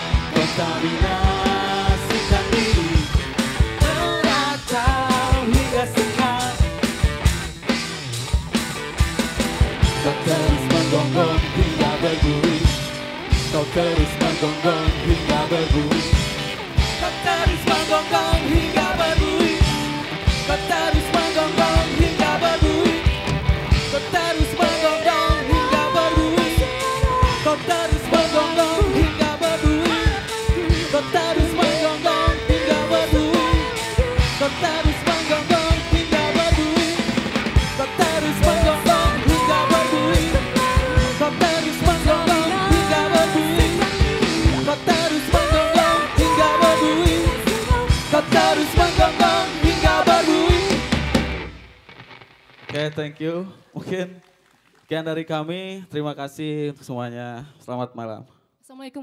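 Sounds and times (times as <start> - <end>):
drum kit: 0.0 - 52.2
electric guitars: 0.0 - 54.9
man singing: 0.2 - 6.8, 9.8 - 23.2, 23.8 - 50.9
woman singing: 3.8 - 6.6, 10.0 - 12.6, 17.0 - 19.8, 20.5 - 23.1, 23.9 - 37.1, 37.8 - 50.8.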